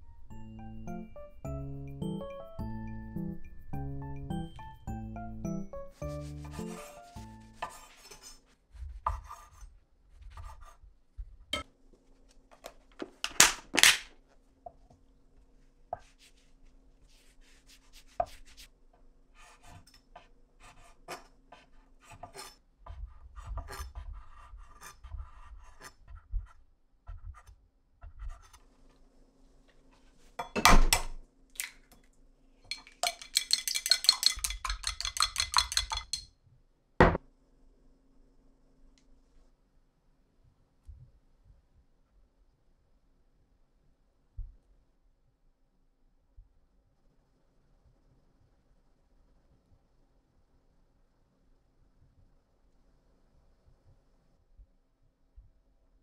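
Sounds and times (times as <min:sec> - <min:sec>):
utensils knocking and scraping dishes: 0:32.7 - 0:36.3.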